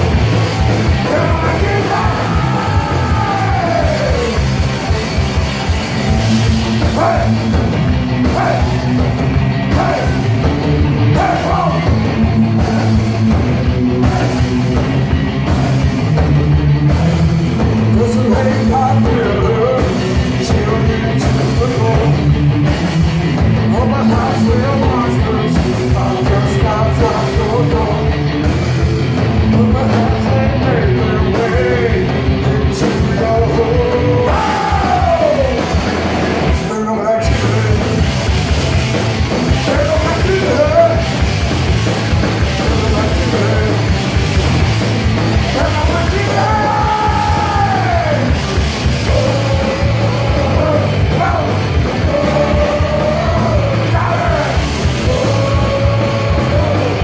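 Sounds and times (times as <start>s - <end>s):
distorted electric guitar: 0.0s - 57.0s
live punk metal band: 0.0s - 57.0s
pounding drums: 0.0s - 57.0s
sung and shouted vocals: 0.8s - 4.6s, 6.1s - 9.0s, 9.6s - 13.1s, 13.9s - 14.6s, 29.4s - 35.8s, 45.5s - 57.0s.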